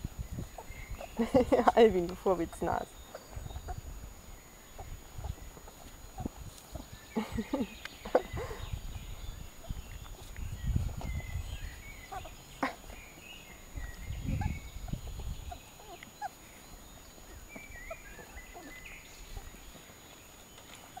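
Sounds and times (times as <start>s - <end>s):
puppies squeaking: 0.5s - 3.9s, 9.6s - 13.2s, 13.8s - 19.8s, 20.7s - 21.0s.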